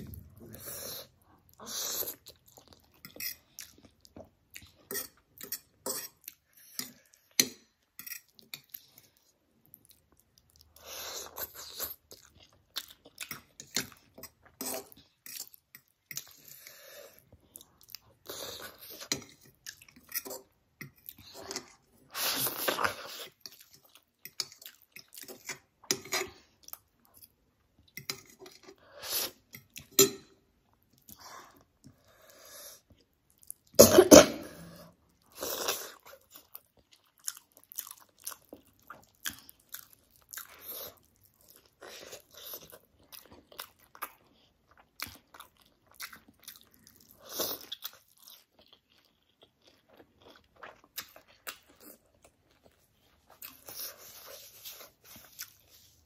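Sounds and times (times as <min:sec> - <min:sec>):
person chewing food: 0:00.0 - 0:56.0
person coughing: 0:33.8 - 0:34.8.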